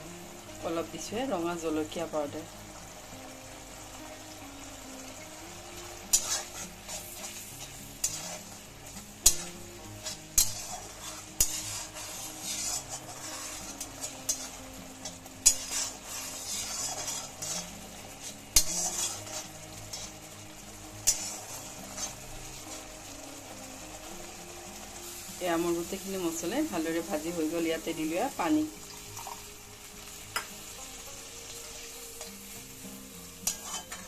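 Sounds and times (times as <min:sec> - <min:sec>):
paste sizzling in oil: 0:00.0 - 0:34.0
ladle scraping a pan: 0:06.1 - 0:20.3, 0:21.0 - 0:22.8, 0:33.4 - 0:34.0.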